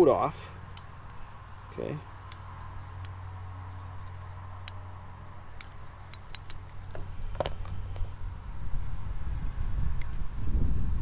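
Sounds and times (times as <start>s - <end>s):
steady low hum: 0.0s - 11.0s
light metallic clicks and taps: 0.5s - 0.9s, 2.2s - 4.8s, 5.6s - 8.0s.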